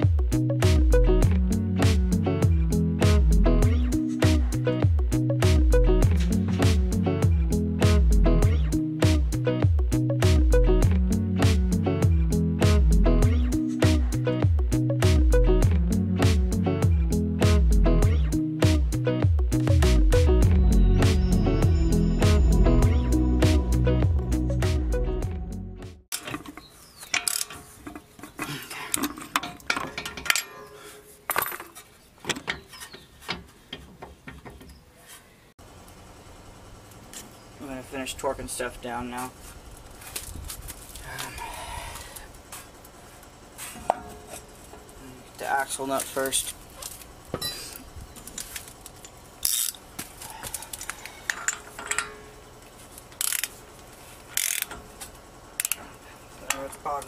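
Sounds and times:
metal brake rotor clinking: 27.0s - 31.8s, 50.8s - 52.6s
ratchet wrench clicking: 49.4s - 49.8s, 53.1s - 53.6s, 54.3s - 54.9s, 55.6s - 55.9s.

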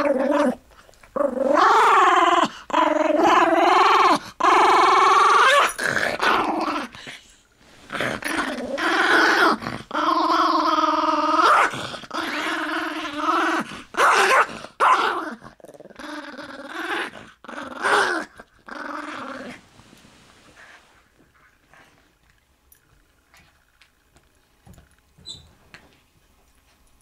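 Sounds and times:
dog growling: 0.0s - 7.3s, 7.9s - 19.6s.

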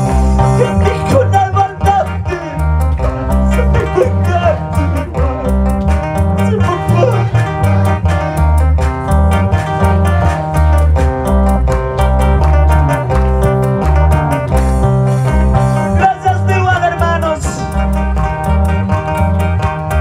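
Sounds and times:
instrumental live band music: 0.0s - 20.0s.

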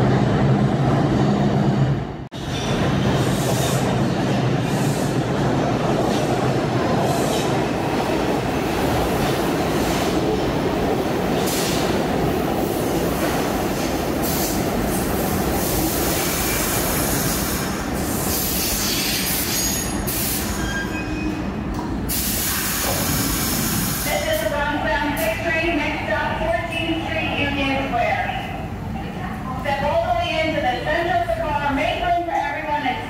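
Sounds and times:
subway train rumbling and rattling: 0.0s - 33.0s
high-pitched wheel squeals: 20.5s - 21.4s.

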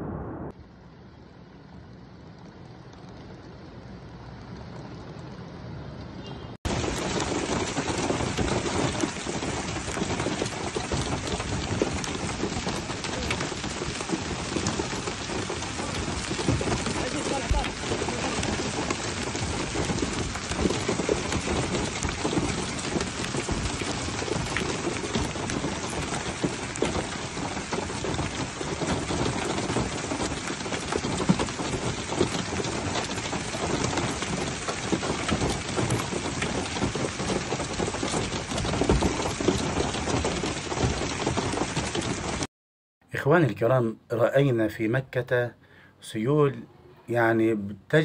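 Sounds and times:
rain: 0.0s - 42.5s, 44.5s - 48.0s
hail pelting pavement: 6.6s - 42.5s.

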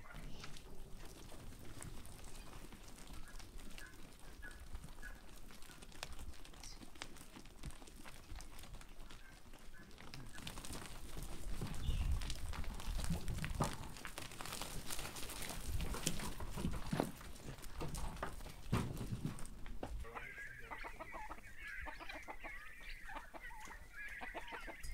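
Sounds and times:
sheep hooves on stony ground: 0.0s - 24.9s
faint bird chirps: 20.1s - 24.9s.

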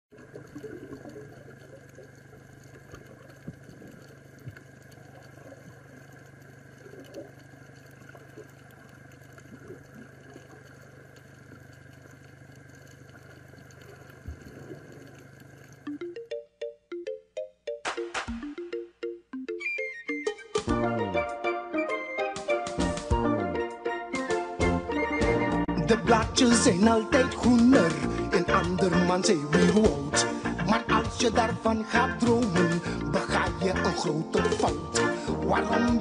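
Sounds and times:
water crackles and gurgles: 0.1s - 16.3s, 26.2s - 36.0s
low underwater hum: 0.1s - 16.4s, 24.6s - 36.0s.

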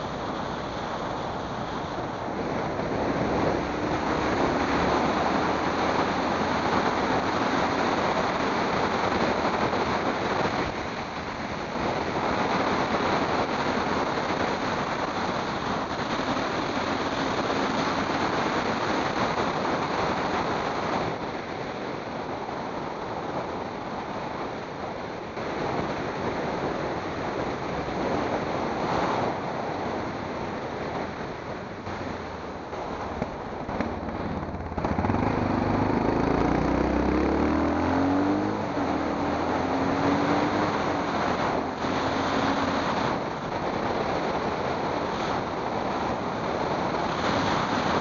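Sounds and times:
passing vehicle: 0.0s - 48.0s
wind on microphone: 0.0s - 48.0s
tyre noise on asphalt: 26.2s - 48.0s
engine revving loud: 33.6s - 43.5s.

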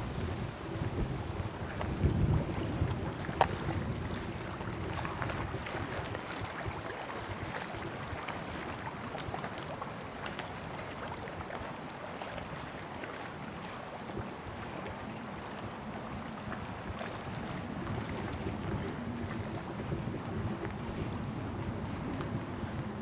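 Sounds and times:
wind buffeting microphone: 0.0s - 9.7s, 13.9s - 23.0s
faint rush of wind: 0.0s - 23.0s
lake water: 0.0s - 23.0s.

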